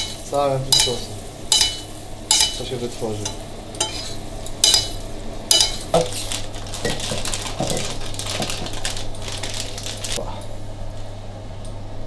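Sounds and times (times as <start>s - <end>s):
metal spoon clinking on pan: 0.0s - 2.6s, 3.2s - 6.2s.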